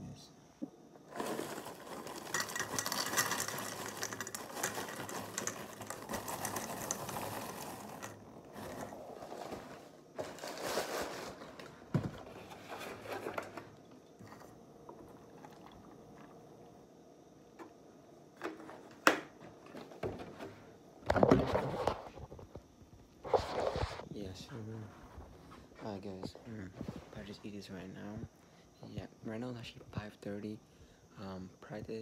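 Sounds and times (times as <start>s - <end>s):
cereal pouring into a ceramic bowl: 1.1s - 11.4s.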